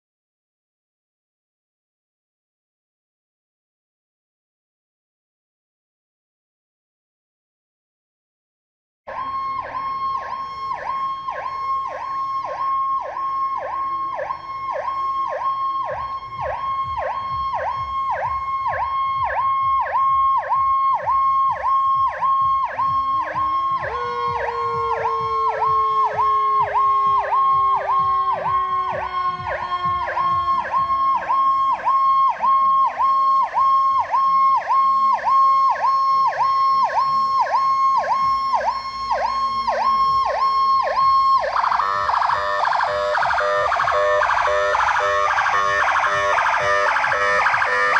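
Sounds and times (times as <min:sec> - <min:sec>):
low engine rumble: 0:09.1 - 0:42.8
lower siren tone sliding down: 0:09.1 - 0:47.9
rapidly pulsing siren: 0:09.1 - 0:47.9.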